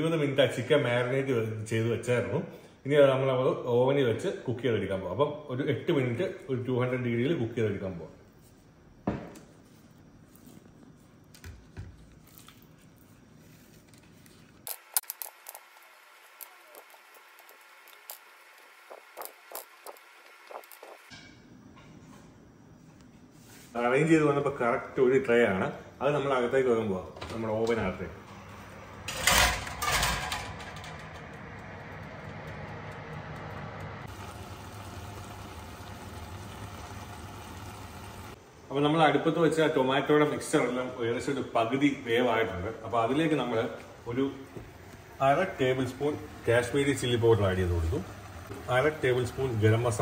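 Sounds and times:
pot simmering on stove: 14.7 - 21.1, 30.6 - 38.4, 43.9 - 50.0
kitchen fan humming: 14.7 - 21.2, 25.0 - 39.3, 41.6 - 50.0.

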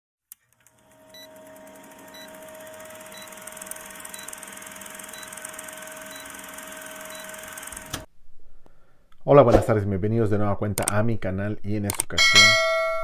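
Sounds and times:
projector-like rattle: 0.4 - 8.1
steady hum: 0.8 - 8.1.

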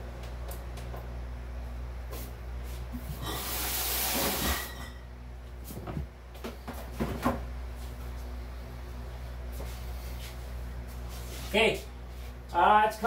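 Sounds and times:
box fan humming: 0.0 - 13.0
loud scraping hiss: 3.2 - 4.8.

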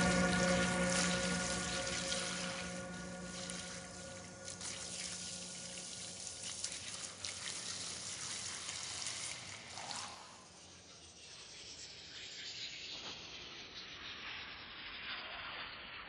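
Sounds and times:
held synth tones: 0.0 - 6.1
hissing crackling noise texture: 0.0 - 6.4.

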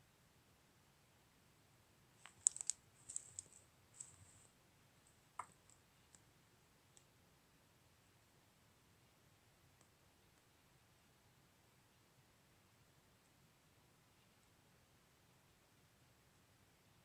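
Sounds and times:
laptop clicks and taps: 2.2 - 4.1.

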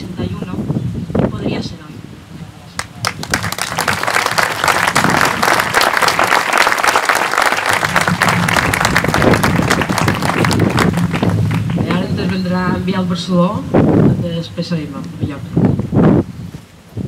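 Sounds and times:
audience applauding: 2.8 - 12.5.

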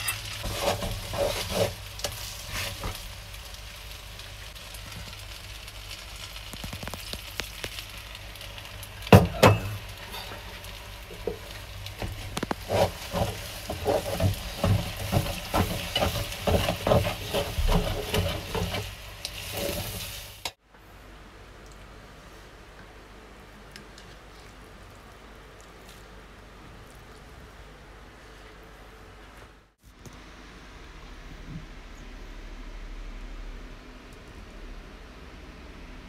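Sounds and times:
tongs clattering in metal pot: 0.0 - 0.8, 9.3 - 11.3
faint sizzle from pan: 0.0 - 20.6.

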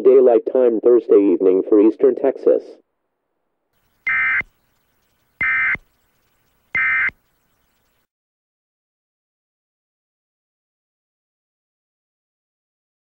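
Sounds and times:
buzzy digital alert tones: 4.0 - 4.5, 5.4 - 5.8, 6.7 - 7.2.

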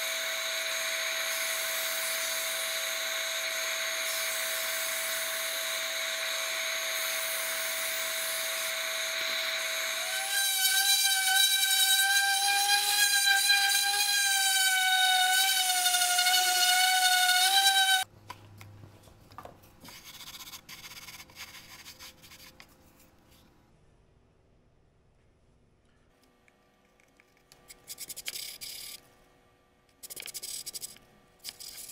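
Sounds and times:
shop machine humming and hissing: 0.0 - 10.2
orbital sander whining: 0.0 - 18.1.

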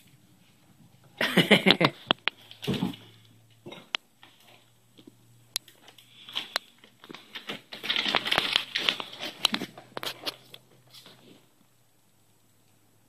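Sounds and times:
foil duct tube crinkling: 5.7 - 11.4.

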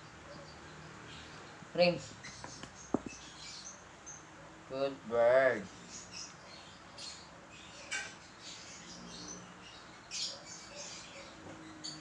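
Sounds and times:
light taps: 2.4 - 3.2.

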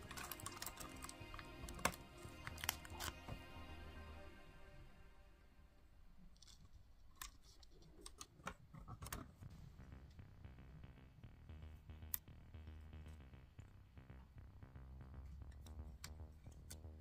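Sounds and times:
plastic pieces clicking together: 0.0 - 3.2
faint background music: 0.0 - 7.5, 8.1 - 17.0.

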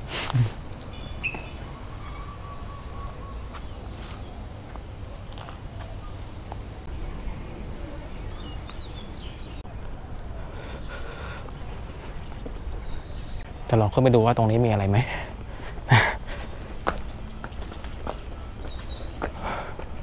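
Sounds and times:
birds chirping: 0.0 - 20.0
steady low rumble: 6.4 - 13.7.

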